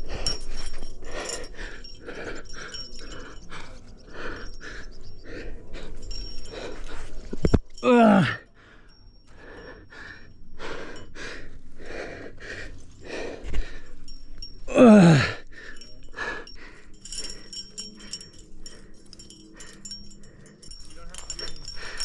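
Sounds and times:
person breathing hard: 0.0 - 22.0
groan of effort: 7.8 - 8.5, 14.7 - 16.4.

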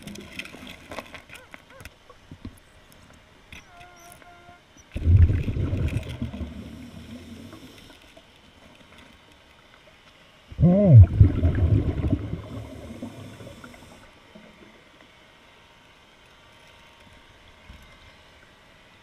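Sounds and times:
scuba regulator exhalation bubbling: 5.0 - 7.7, 10.5 - 14.0.

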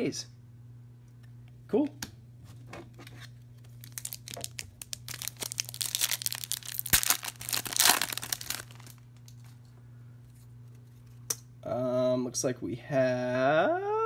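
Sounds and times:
low steady hum: 0.0 - 14.0
foil wrapper tearing and crinkling: 3.6 - 9.3.

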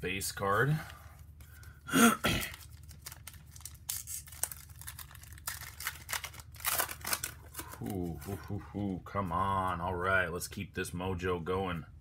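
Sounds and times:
foil wrapper crinkling: 1.5 - 8.4.

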